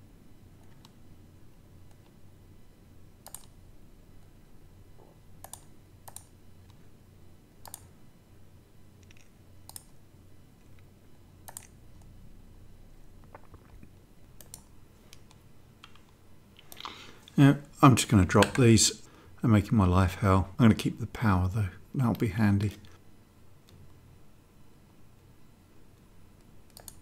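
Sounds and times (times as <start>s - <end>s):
low steady hum: 0.0s - 27.0s
computer mouse clicks: 0.6s - 1.0s, 3.2s - 3.6s, 5.4s - 6.8s, 7.6s - 7.9s, 9.0s - 10.0s, 10.6s - 12.1s, 13.2s - 17.4s, 26.4s - 27.0s.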